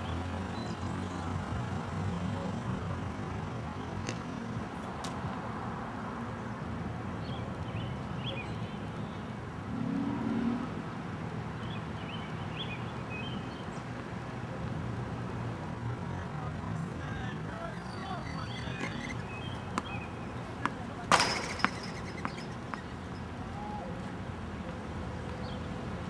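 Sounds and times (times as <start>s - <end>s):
birds chirping: 0.0s - 4.4s, 7.2s - 14.1s, 16.2s - 24.1s
distant traffic rumble: 0.0s - 26.0s.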